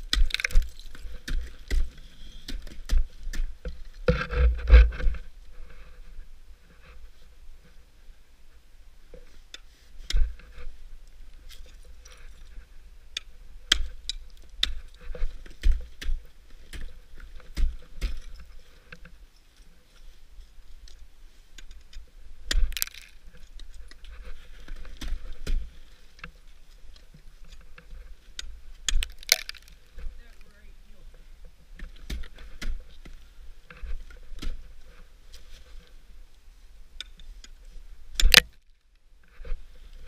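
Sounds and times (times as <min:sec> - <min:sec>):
ice axe striking ice: 0:00.0 - 0:03.5, 0:22.5 - 0:23.2, 0:28.9 - 0:29.8, 0:38.2 - 0:38.6.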